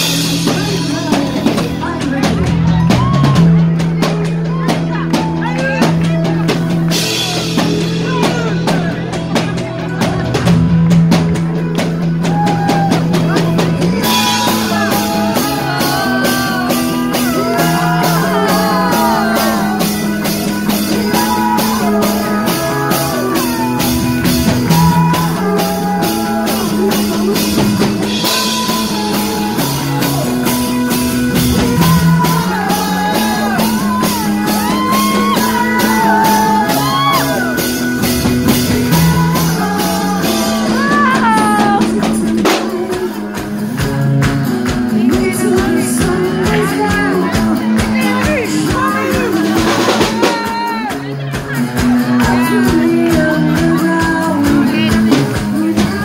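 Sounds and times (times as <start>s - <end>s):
acoustic and electric guitars: 0.0s - 56.0s
drum kit beat: 0.0s - 56.0s
woman singing: 13.6s - 30.0s, 38.8s - 43.6s, 44.4s - 56.0s.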